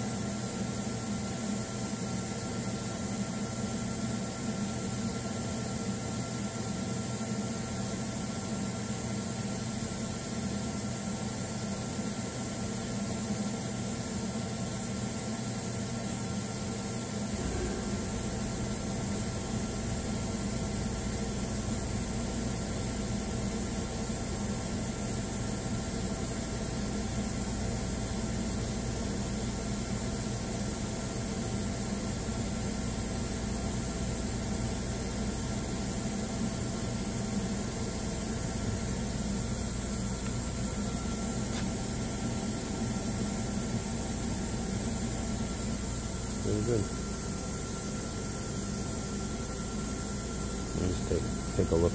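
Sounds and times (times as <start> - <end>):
electrical hum tones: 15.8 - 51.9
deeper low hum: 17.3 - 22.8
steady hiss: 36.9 - 51.9.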